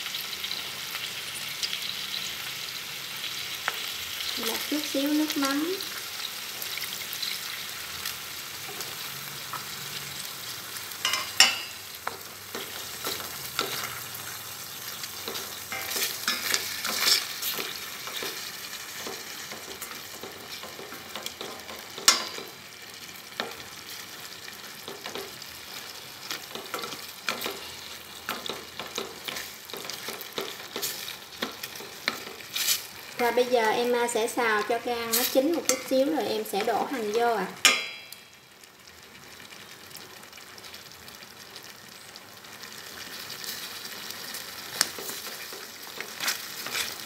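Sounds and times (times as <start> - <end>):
liver sizzling in hot lard: 0.0 - 47.0
chopsticks tapping and scraping metal: 11.0 - 14.4, 15.0 - 22.6, 23.4 - 33.4, 34.6 - 38.2, 44.6 - 47.0.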